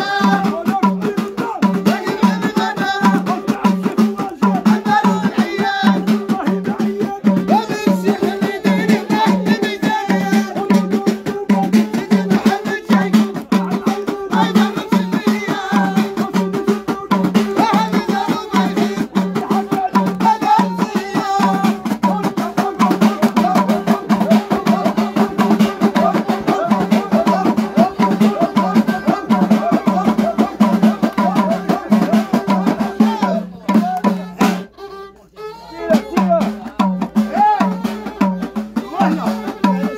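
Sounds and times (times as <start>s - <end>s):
frame drums: 0.0s - 34.8s, 35.8s - 39.9s
men singing: 0.0s - 39.9s
small hand drum: 0.0s - 39.9s.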